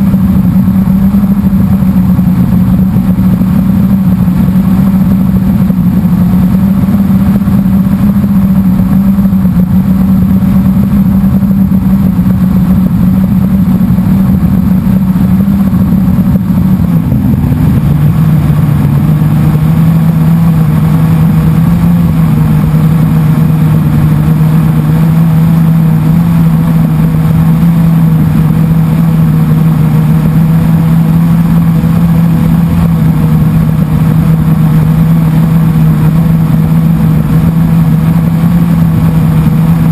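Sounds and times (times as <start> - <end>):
quadcopter motors humming: 0.0 - 39.9.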